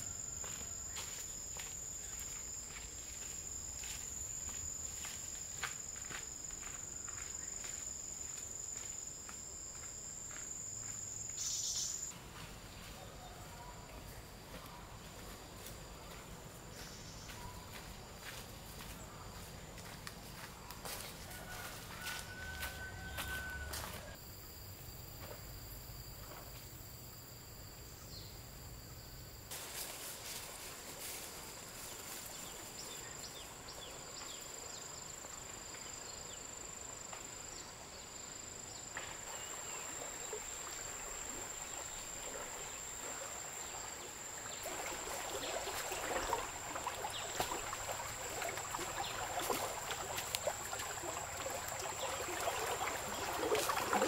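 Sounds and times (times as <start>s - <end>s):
insects droning: 0.0s - 54.0s
footsteps through grass and brush: 0.4s - 11.0s, 14.5s - 24.2s, 29.5s - 32.9s.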